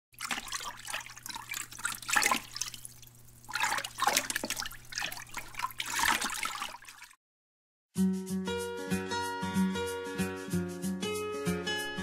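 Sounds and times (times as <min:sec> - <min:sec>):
water splashing and trickling: 0:00.1 - 0:07.2.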